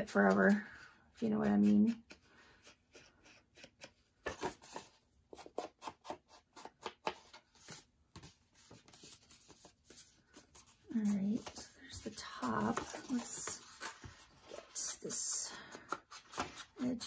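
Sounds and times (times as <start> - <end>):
light paper rustling: 6.6 - 17.0.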